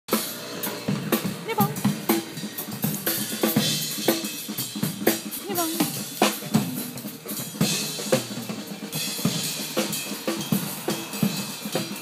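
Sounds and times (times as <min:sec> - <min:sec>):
music with steady drum beat: 0:00.1 - 0:12.0.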